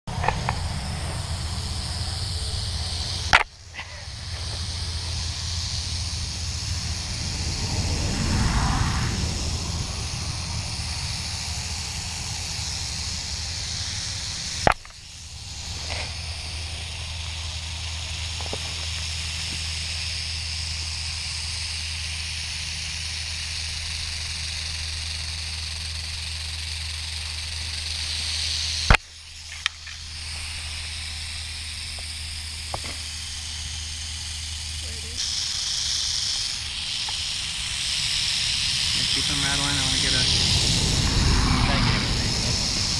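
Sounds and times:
rattlesnake rattling: 0:00.0 - 0:42.9
snake striking camera knocks: 0:32.7 - 0:33.0.

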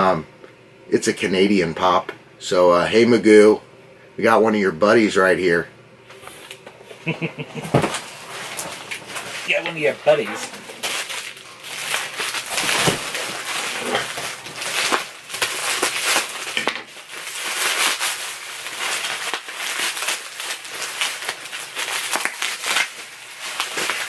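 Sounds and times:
bubble wrap crinkling: 0:07.2 - 0:24.0.

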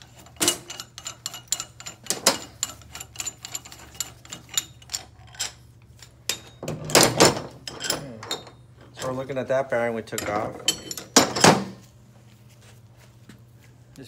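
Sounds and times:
metal parts clicking and clinking: 0:00.0 - 0:09.3, 0:10.1 - 0:11.8.

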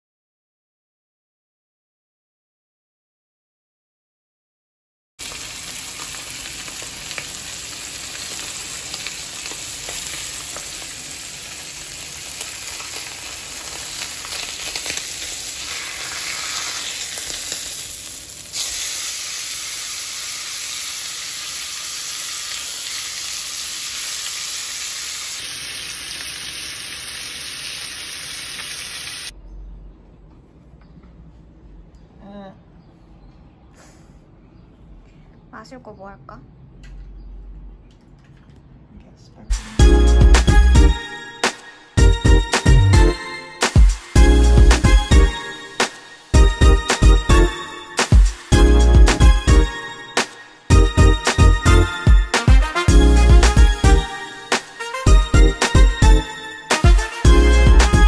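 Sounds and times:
food sizzling on grill pan: 0:05.2 - 0:29.3.

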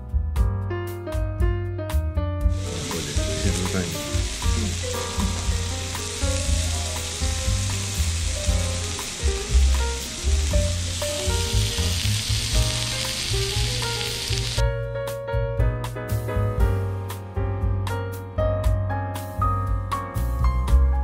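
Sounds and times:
background music: 0:00.0 - 0:21.0
steak sizzling on hot plate: 0:02.5 - 0:14.6.

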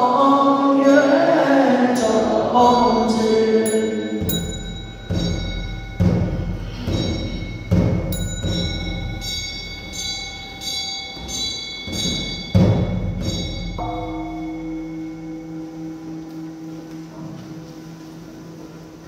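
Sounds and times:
bowl bell ringing: 0:01.0 - 0:19.0
ringing metal bell tones: 0:01.9 - 0:19.0
deep drum thuds: 0:04.2 - 0:09.2, 0:11.2 - 0:14.9.

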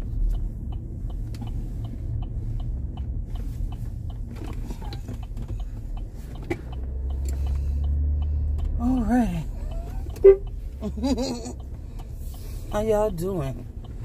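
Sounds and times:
car cabin rumble: 0:00.0 - 0:14.0
light ticking: 0:00.0 - 0:14.0.

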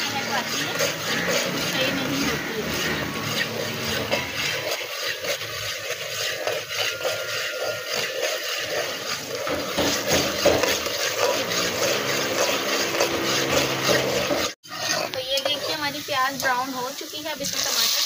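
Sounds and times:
metal spatula scraping pot: 0:00.0 - 0:18.0
onions sizzling in hot oil: 0:09.6 - 0:18.0.

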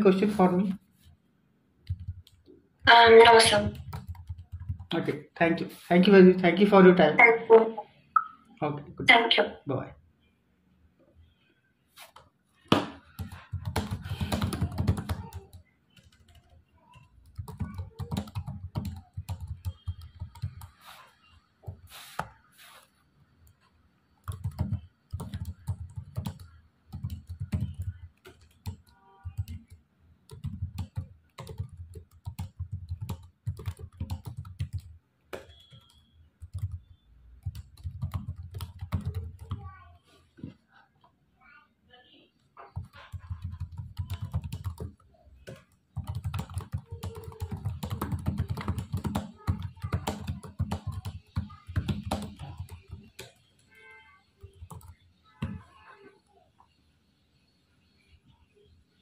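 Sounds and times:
keyboard typing: 0:01.8 - 0:05.1, 0:13.0 - 0:20.8, 0:24.2 - 0:39.7, 0:42.7 - 0:53.7, 0:54.4 - 0:55.6.

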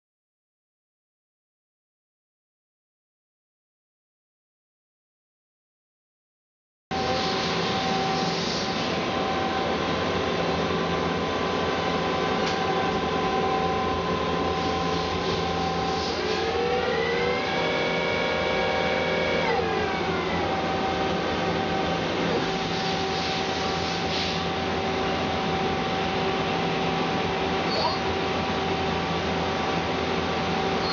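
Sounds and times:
machine whine rising in pitch: 0:07.0 - 0:23.2.

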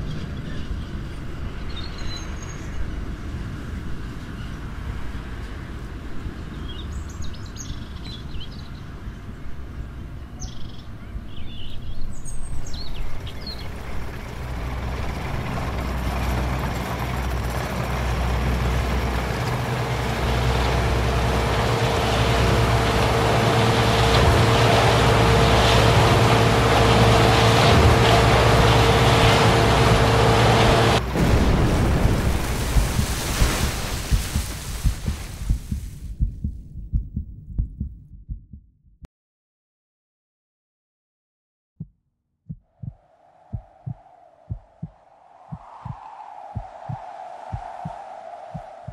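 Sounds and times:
low rumble: 0:09.0 - 0:39.1, 0:42.5 - 0:48.9
loud steady drone: 0:12.8 - 0:32.9, 0:43.6 - 0:48.9
uneven crackling noise: 0:13.8 - 0:37.8, 0:42.8 - 0:48.9.

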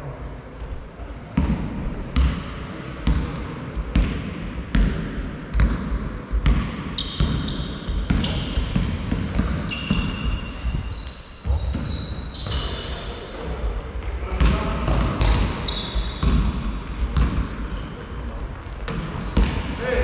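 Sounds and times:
shoes squeaking on court: 0:01.4 - 0:02.3, 0:07.0 - 0:14.6, 0:15.2 - 0:16.4, 0:17.1 - 0:19.6
basketball bouncing on floor: 0:03.0 - 0:10.1, 0:14.3 - 0:17.6, 0:18.8 - 0:19.7.

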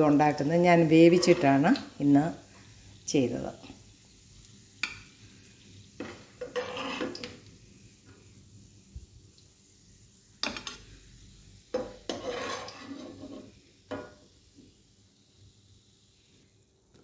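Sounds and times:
oil sizzling: 0:00.0 - 0:17.0
metal spoon knocking on frying pan: 0:11.7 - 0:12.0.

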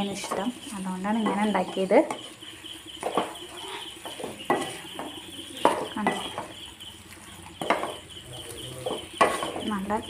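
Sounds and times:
wooden spatula scraping pan: 0:03.0 - 0:10.0
spatula knocks: 0:04.1 - 0:06.5, 0:08.8 - 0:09.7.

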